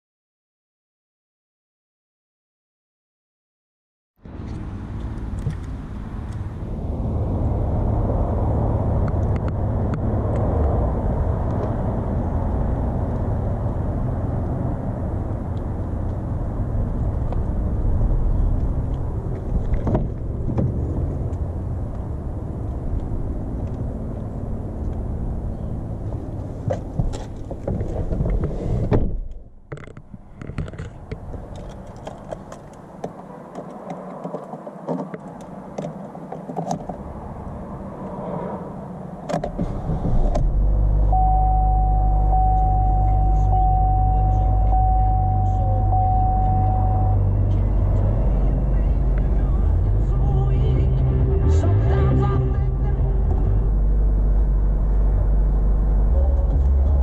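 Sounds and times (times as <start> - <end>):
wind rumbling on microphone: 4.2 - 41.3
car door shutting: 26.7 - 29.4, 39.3 - 40.6.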